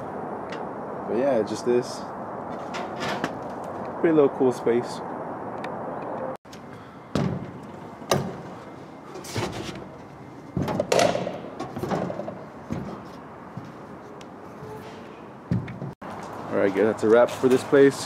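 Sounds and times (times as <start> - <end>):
irregular knocks and thuds: 7.1 - 8.6, 9.2 - 13.8, 15.5 - 16.0.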